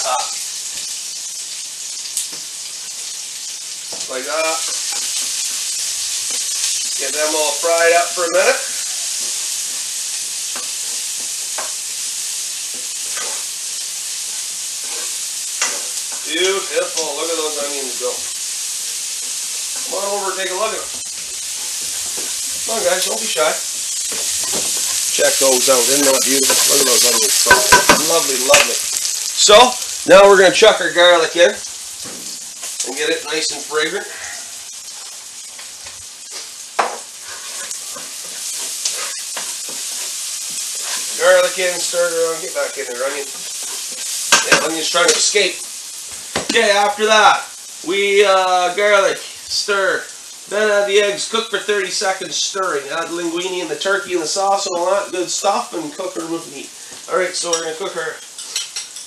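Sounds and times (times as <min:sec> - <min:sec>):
onions sizzling in oil: 0:00.0 - 0:59.0
wooden spoon scraping: 0:12.7 - 0:13.5, 0:14.8 - 0:17.4, 0:18.0 - 0:29.6, 0:37.2 - 0:44.8.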